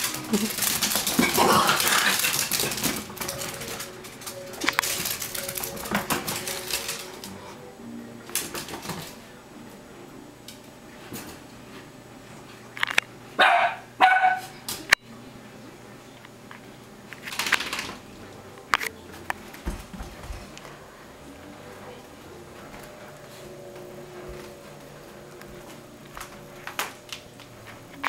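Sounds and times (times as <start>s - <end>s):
dog barking: 13.4s - 14.6s.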